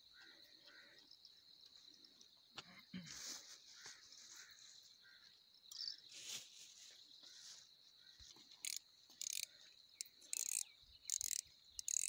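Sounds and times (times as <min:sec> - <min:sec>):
insects chirring: 0:00.0 - 0:12.0
fishing reel being cranked: 0:08.6 - 0:12.0.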